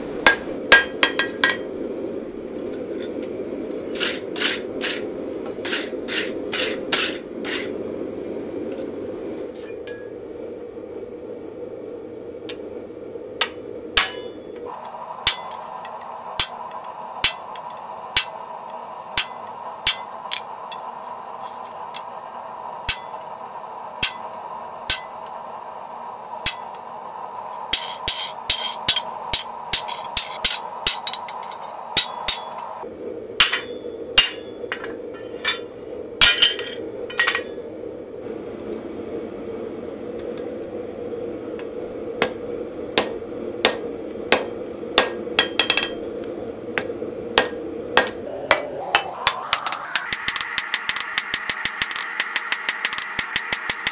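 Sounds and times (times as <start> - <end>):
steady hum: 0.0 - 53.9
hammer striking tool on steel: 13.4 - 14.5, 15.2 - 20.8, 22.9 - 23.2, 24.0 - 25.3, 26.4 - 26.8, 27.7 - 32.7, 33.4 - 37.5, 47.4 - 53.9.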